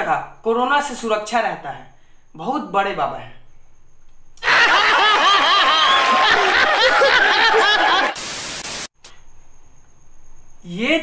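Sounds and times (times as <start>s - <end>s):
audience laughing and clapping: 4.4s - 8.2s
tv static hiss: 7.3s - 8.9s.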